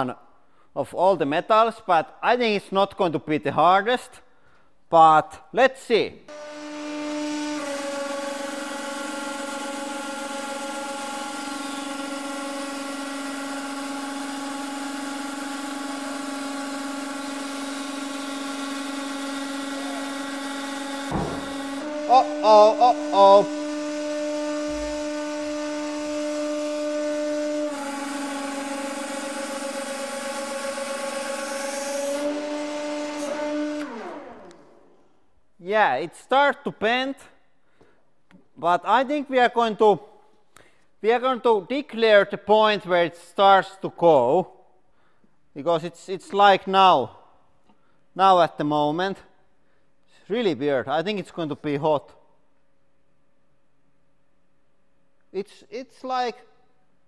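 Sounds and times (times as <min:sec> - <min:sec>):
hydraulic press humming: 0:06.3 - 0:35.0
loud wavering squeals: 0:21.1 - 0:25.4.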